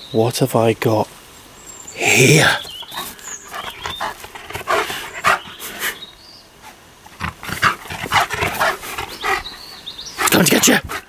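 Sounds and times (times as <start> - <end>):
dog making breathy huffs: 2.9 - 11.0.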